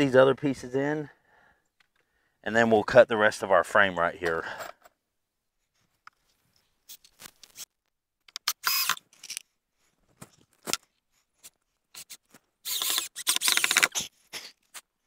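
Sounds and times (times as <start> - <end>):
cordless drill driving screws: 8.5 - 9.4, 12.0 - 14.1.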